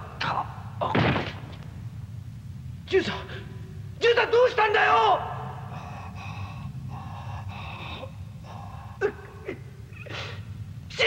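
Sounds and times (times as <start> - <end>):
low steady hum: 0.0 - 11.0
sharp sobs: 3.0 - 11.0
person crying and whimpering: 5.7 - 10.5.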